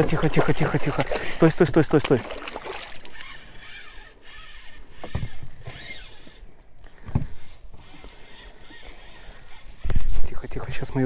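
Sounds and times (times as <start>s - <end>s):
dull thumps in a boat: 5.0s - 5.4s.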